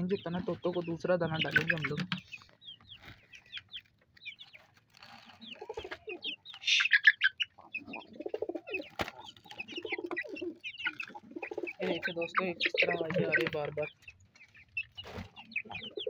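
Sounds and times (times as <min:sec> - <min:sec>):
chickens clucking: 0:00.0 - 0:16.0
high bird chirps: 0:00.0 - 0:16.0
pigeons cooing: 0:04.9 - 0:16.0.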